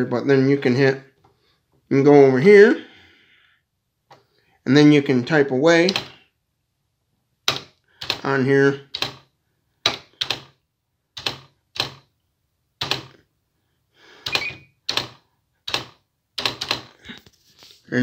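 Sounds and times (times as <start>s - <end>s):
typewriter clacking: 7.5s - 10.6s, 11.2s - 12.1s, 12.8s - 13.2s, 14.2s - 17.0s.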